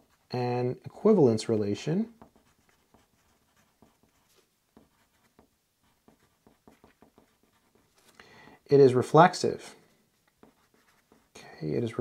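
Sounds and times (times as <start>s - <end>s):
pencil writing on paper: 2.2s - 8.0s, 10.4s - 11.4s.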